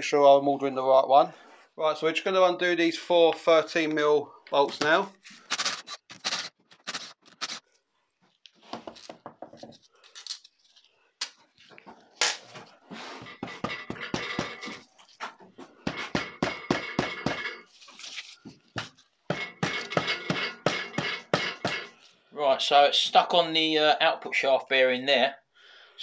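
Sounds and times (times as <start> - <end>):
tool knocking on metal: 13.3 - 14.8, 15.8 - 17.6, 18.8 - 22.0.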